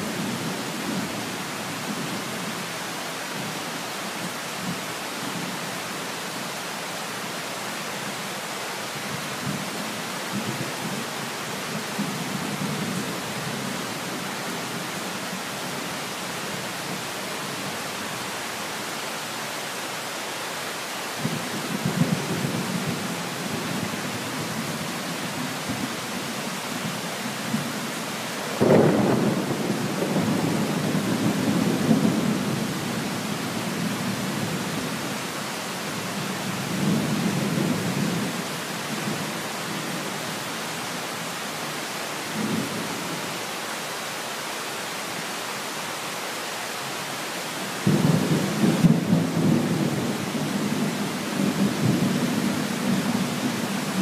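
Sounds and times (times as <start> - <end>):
steady rain: 0.0 - 54.0
thunder rumbling: 28.5 - 32.7
thunder crack: 28.6 - 30.4.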